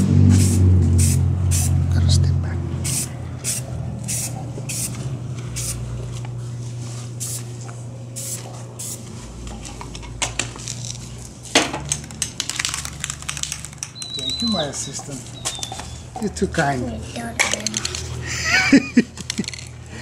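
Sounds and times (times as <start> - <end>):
spray-paint can hissing: 0.3 - 1.8, 2.8 - 5.0, 5.6 - 5.8, 7.2 - 7.5, 8.2 - 9.0.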